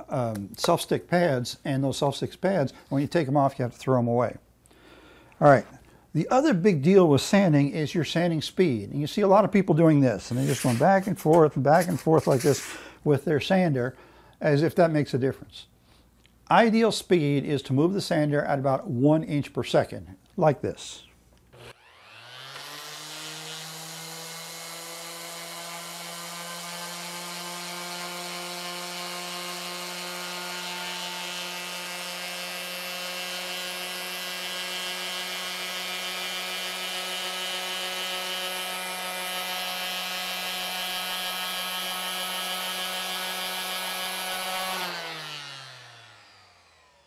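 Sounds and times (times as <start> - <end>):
orbital sander humming: 10.3 - 12.9, 21.5 - 47.0.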